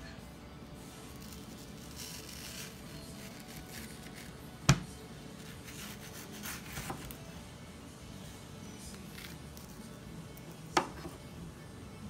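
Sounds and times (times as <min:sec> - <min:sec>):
knife scraping through mango: 0:01.0 - 0:04.5, 0:05.4 - 0:07.2.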